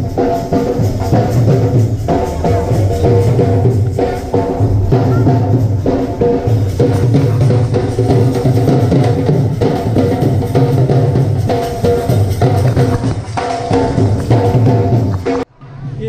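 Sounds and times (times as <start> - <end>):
dhol drums beating: 0.0 - 15.5
pitched melody: 0.1 - 15.2.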